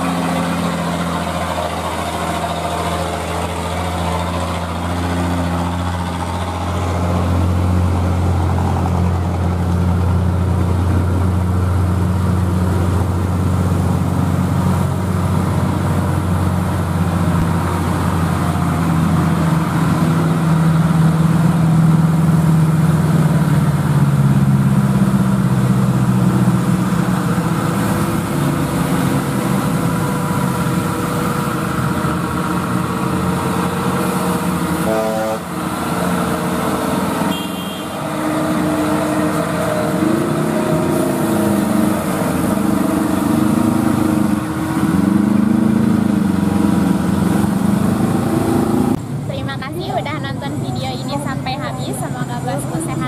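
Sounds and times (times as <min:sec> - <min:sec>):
truck diesel engine labouring: 0:00.0 - 0:53.0
motorcycles passing: 0:23.6 - 0:53.0.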